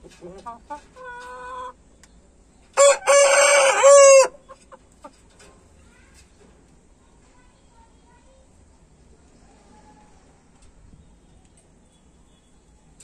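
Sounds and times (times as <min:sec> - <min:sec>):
rooster crowing: 0:02.8 - 0:04.4.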